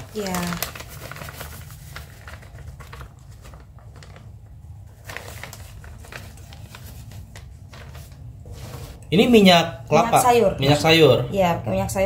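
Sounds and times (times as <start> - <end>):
plastic bag crinkling: 0.0 - 9.0
low steady hum: 0.0 - 12.0.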